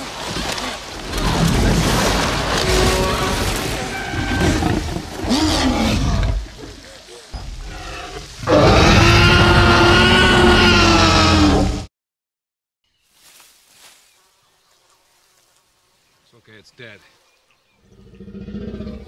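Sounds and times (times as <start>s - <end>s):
dinosaur roar: 7.6s - 11.9s.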